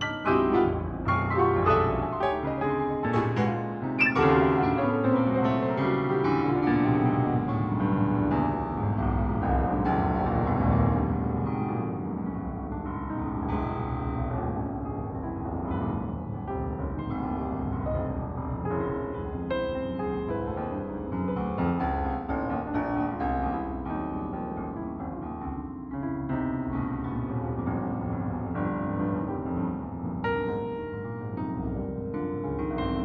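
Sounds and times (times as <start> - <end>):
piano keyboard music: 0.0 - 10.0.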